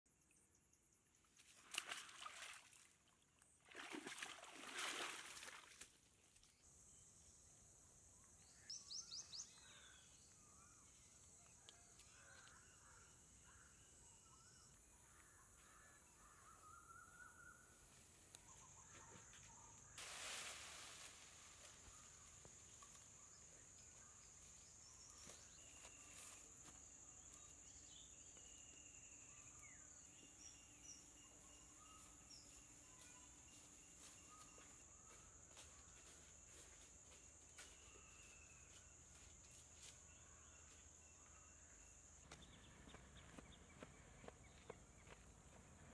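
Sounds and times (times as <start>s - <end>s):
feet splashing in shallow water: 1.5s - 6.0s.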